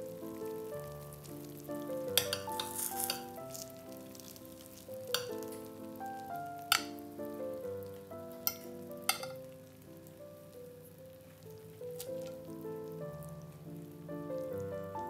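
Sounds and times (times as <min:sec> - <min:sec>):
soft background music: 0:00.0 - 0:15.0
fork clinking on dishes: 0:02.2 - 0:03.6, 0:06.7 - 0:06.9, 0:08.5 - 0:09.4.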